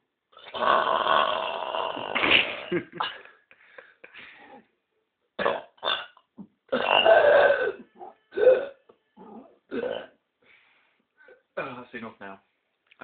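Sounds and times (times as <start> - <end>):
man burping: 0.4 - 3.4, 5.4 - 10.2.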